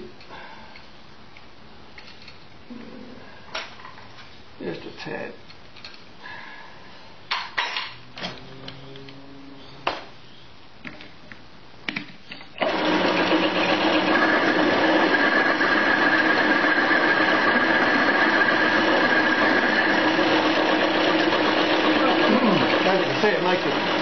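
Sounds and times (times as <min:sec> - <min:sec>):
bench lathe whining: 0:12.6 - 0:24.0.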